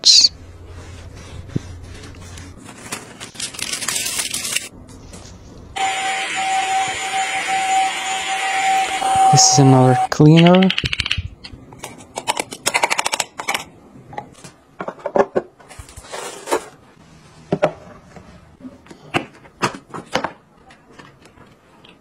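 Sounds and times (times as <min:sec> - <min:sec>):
plastic wrapper rustling: 0:02.3 - 0:05.4
sharp clicks and taps: 0:10.2 - 0:11.6.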